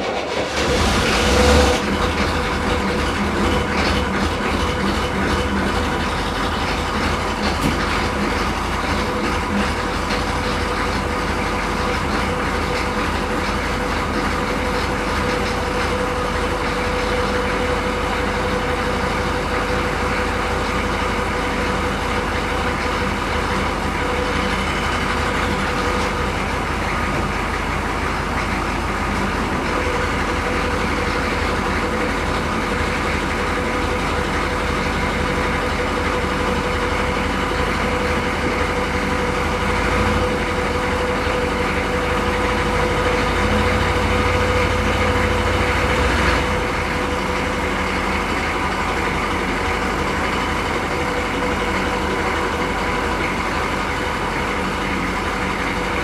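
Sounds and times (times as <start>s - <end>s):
diesel engine idling: 0.0s - 56.0s.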